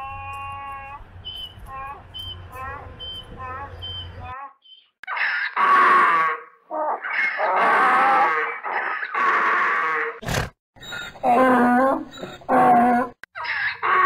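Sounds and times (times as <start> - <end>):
donkey braying: 0.0 - 10.2.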